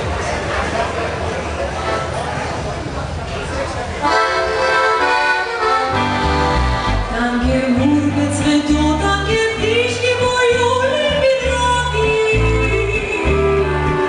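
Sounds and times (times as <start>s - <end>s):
accordion: 1.8s - 2.2s, 4.0s - 14.0s
polka band playing: 4.0s - 14.0s
woman singing: 7.0s - 14.0s.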